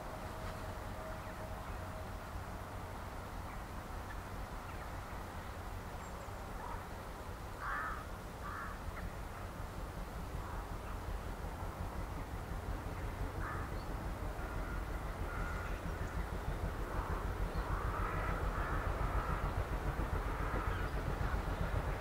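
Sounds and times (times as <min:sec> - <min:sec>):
distant steam locomotive whistle: 0:00.0 - 0:03.0, 0:13.5 - 0:19.5
bird cawing: 0:07.6 - 0:08.8, 0:13.4 - 0:13.7, 0:17.0 - 0:19.4
steady low rumble: 0:08.8 - 0:22.0.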